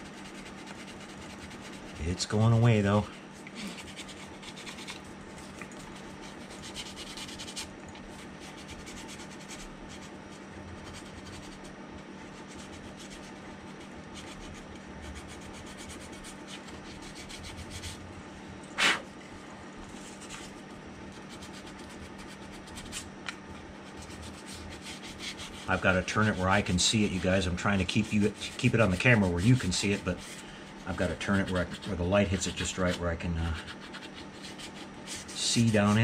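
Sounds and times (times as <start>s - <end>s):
sandpaper rasping: 0.0s - 2.0s, 3.6s - 5.0s, 6.2s - 10.1s, 14.1s - 18.0s, 23.9s - 36.0s.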